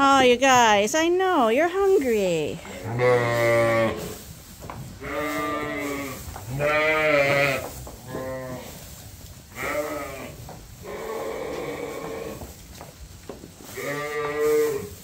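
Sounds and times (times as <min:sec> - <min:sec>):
sheep bleating: 0:02.7 - 0:04.1, 0:05.0 - 0:08.7, 0:09.6 - 0:12.4, 0:13.8 - 0:14.9.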